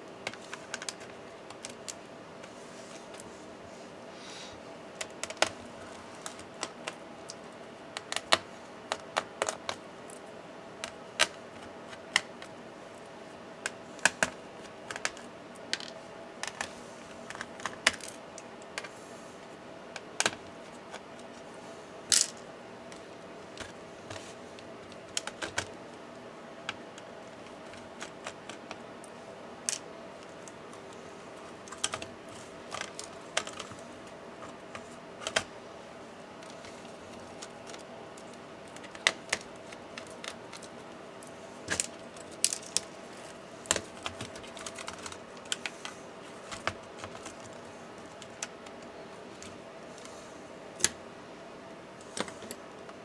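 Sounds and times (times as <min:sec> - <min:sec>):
faint steady hum: 0:00.0 - 0:53.0.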